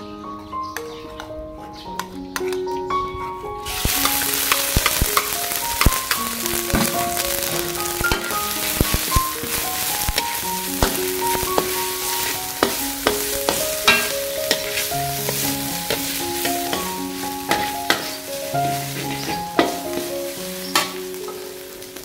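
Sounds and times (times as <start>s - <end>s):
soft piano-like music: 0.0s - 22.0s
food sizzling in a wok: 3.6s - 22.0s
metal spatula scraping a pan: 3.8s - 21.4s.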